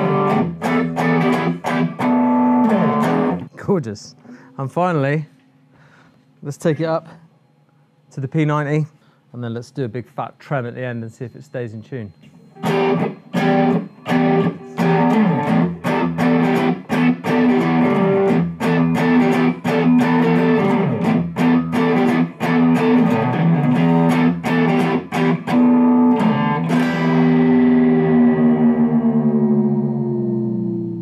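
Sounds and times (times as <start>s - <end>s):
electric guitar notes and chords: 0.0s - 3.5s, 12.5s - 31.0s
guitar chord ringing: 0.0s - 4.6s, 12.2s - 31.0s.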